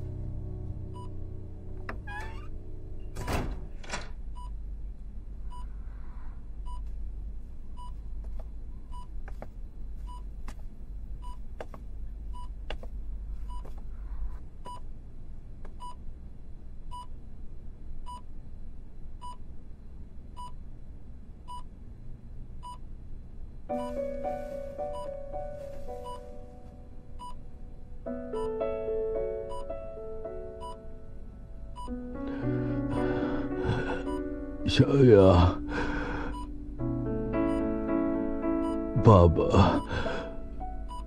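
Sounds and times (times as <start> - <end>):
low room hum: 0.0 - 41.0
patient monitor beeping: 23.7 - 27.5, 28.3 - 28.6, 29.5 - 29.8, 30.6 - 30.9, 31.7 - 36.6, 38.6 - 41.0.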